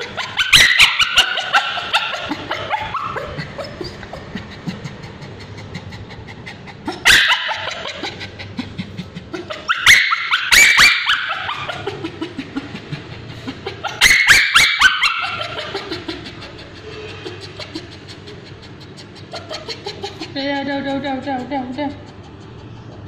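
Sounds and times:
dog screaming: 0.0 - 3.4, 7.0 - 8.0, 9.5 - 11.9, 13.8 - 15.9.

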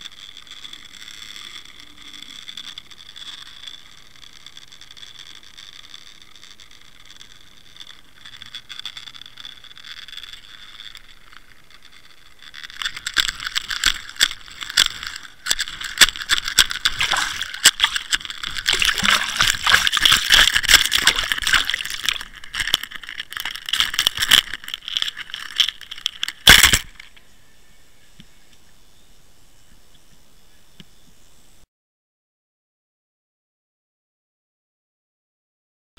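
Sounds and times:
splashing and knocking: 12.8 - 27.0.

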